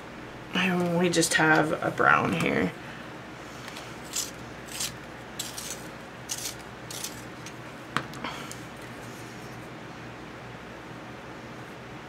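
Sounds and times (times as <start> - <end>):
pencil sharpener scraping: 4.0 - 7.2.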